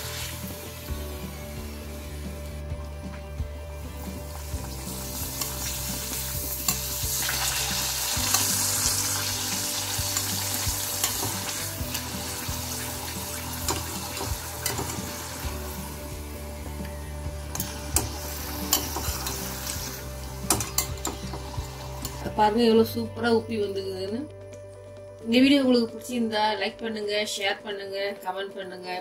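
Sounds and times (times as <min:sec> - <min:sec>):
papad sizzling in hot oil: 0:00.0 - 0:22.6
metal tongs clicking on pan: 0:13.6 - 0:15.1, 0:18.7 - 0:19.4, 0:20.5 - 0:21.3.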